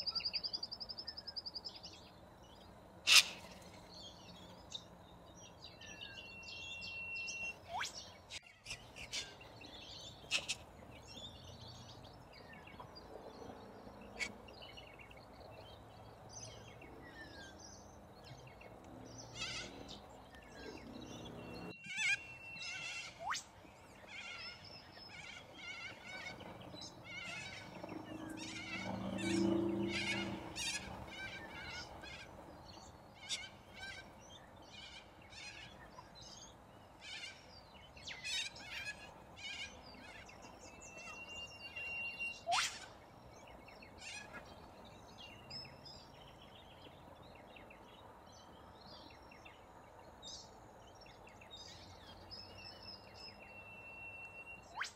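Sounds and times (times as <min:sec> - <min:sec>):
drawn-out bird cry: 0:03.0 - 0:04.8, 0:05.4 - 0:12.9, 0:17.2 - 0:46.5
corellas calling harshly: 0:27.0 - 0:32.3.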